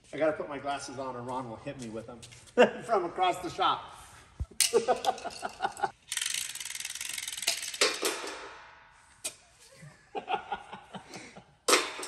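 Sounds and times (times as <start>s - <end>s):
chain hoist ratchet clicking: 4.6s - 8.6s.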